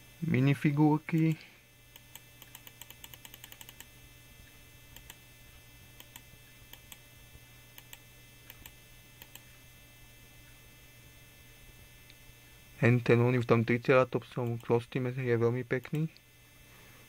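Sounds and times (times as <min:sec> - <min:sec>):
low electrical hum: 0:00.0 - 0:17.0
computer mouse clicks: 0:01.1 - 0:03.9, 0:04.9 - 0:05.2, 0:06.0 - 0:07.0, 0:07.8 - 0:09.5.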